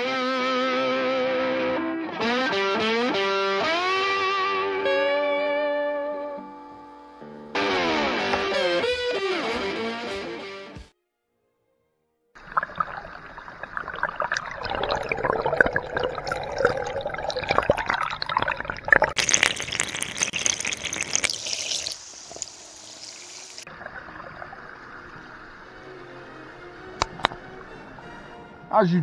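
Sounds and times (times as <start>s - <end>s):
water gurgling into bottle: 12.4s - 26.2s, 27.0s - 27.7s
hissing splash: 12.4s - 28.1s.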